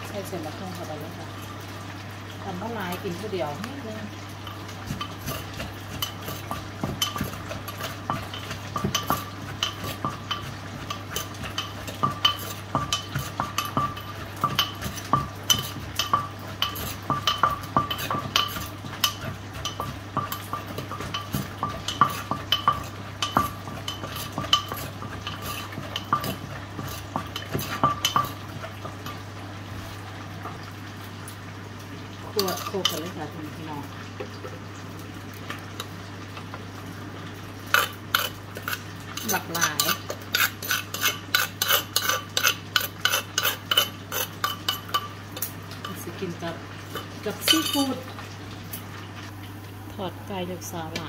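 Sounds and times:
pestle knocking in mortar: 4.9s - 29.1s.

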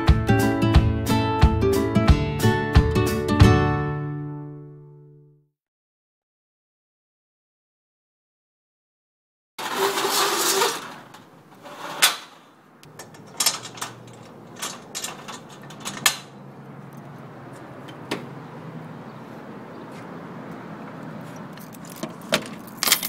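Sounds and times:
metal security gate clanking: 9.6s - 16.4s, 21.6s - 23.0s.

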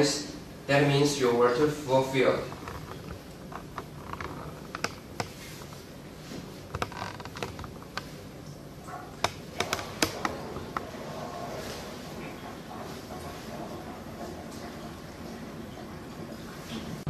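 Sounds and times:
plastic hose and funnel clicking: 9.2s - 10.8s.

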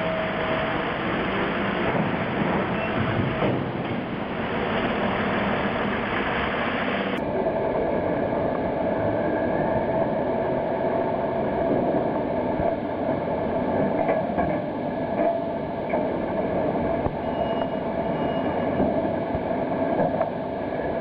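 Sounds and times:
container crane running: 0.0s - 7.2s.

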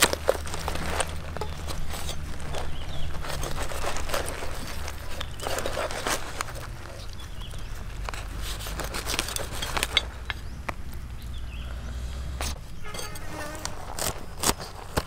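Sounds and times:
short insect-like buzzing: 12.8s - 14.0s.

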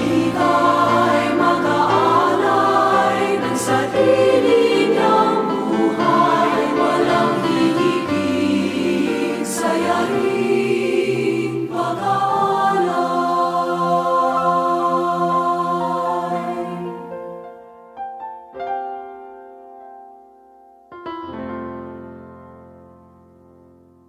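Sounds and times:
held instrumental chord: 0.0s - 16.9s
choir singing a hymn: 0.0s - 17.4s.

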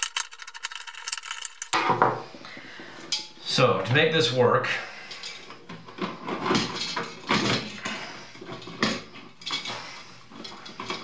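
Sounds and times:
switch parts clicking and rattling: 0.0s - 1.8s
wires rustling: 0.0s - 1.8s.

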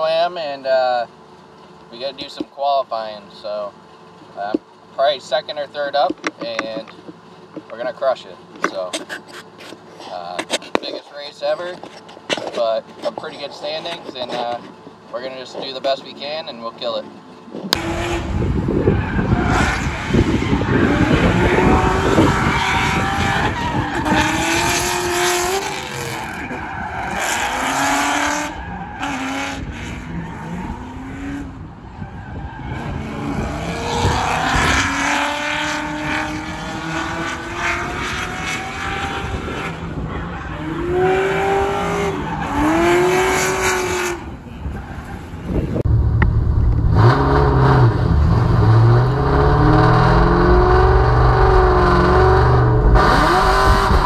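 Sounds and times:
car engine revving: 3.4s - 54.0s
tires squealing and skidding: 7.8s - 45.8s.

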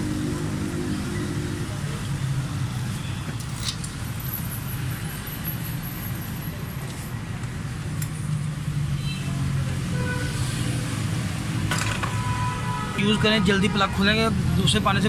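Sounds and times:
motor vehicle humming: 0.0s - 5.2s.

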